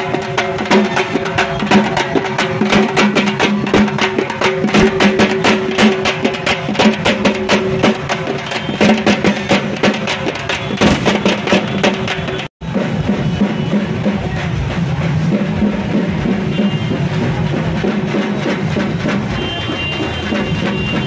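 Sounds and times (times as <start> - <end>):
fast loud drum beats: 0.0 - 21.0.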